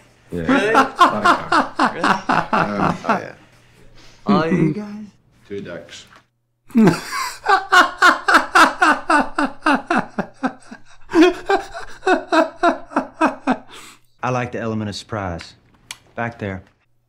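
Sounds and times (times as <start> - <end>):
man laughing hard: 0.5 - 3.2, 6.7 - 13.8.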